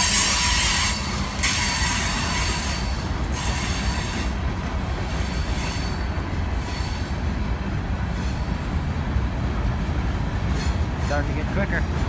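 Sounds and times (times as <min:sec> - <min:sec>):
high wheel squeal: 0:00.0 - 0:04.4, 0:05.2 - 0:07.2
train wheels rumbling on rails: 0:00.0 - 0:12.0.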